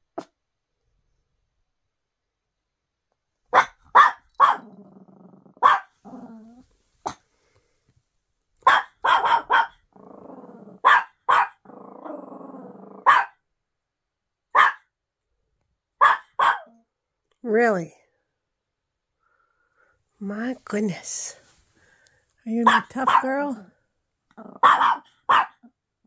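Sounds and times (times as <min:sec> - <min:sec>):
puppy barking: 0:03.5 - 0:04.7, 0:05.6 - 0:06.0, 0:08.6 - 0:09.8, 0:10.8 - 0:11.6, 0:13.0 - 0:13.4, 0:14.5 - 0:14.9, 0:16.0 - 0:16.8, 0:22.6 - 0:23.4, 0:24.6 - 0:25.7
puppy growling: 0:04.5 - 0:07.2, 0:09.4 - 0:13.3, 0:24.3 - 0:25.7.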